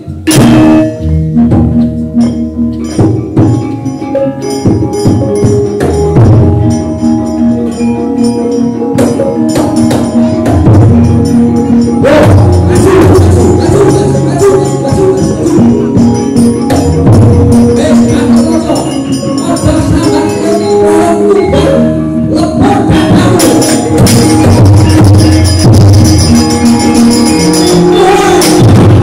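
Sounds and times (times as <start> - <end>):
gamelan ensemble playing: 0.0 - 29.0
metallophones ringing: 0.0 - 29.0
low drum beats: 9.0 - 14.2, 22.9 - 27.6, 28.4 - 29.0.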